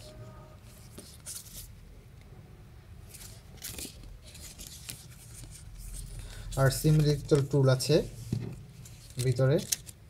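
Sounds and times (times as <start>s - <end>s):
paper rustling: 3.1s - 7.6s, 8.2s - 10.0s.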